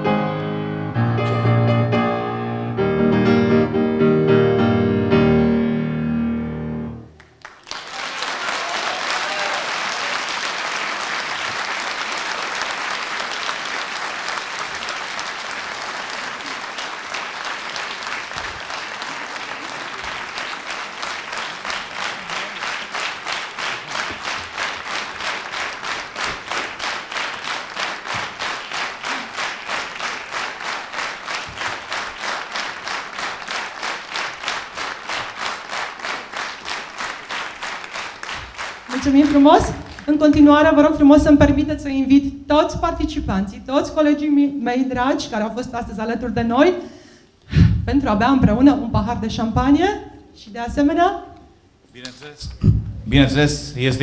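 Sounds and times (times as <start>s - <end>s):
grand piano chords: 0.0s - 7.2s
audience applause: 7.2s - 40.2s
rhythmic clapping in unison: 7.2s - 41.6s.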